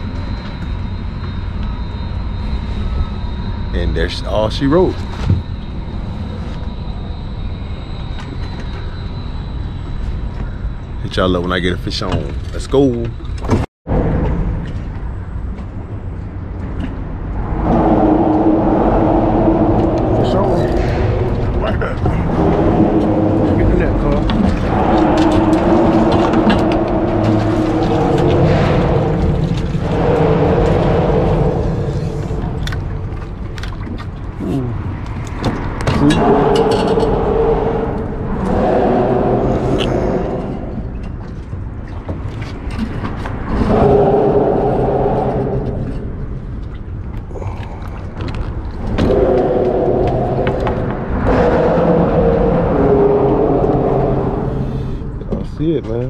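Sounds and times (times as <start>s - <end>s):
traffic rumble on bridge: 0.0s - 56.0s
tyres whining on bridge deck: 14.0s - 41.8s, 48.9s - 56.0s.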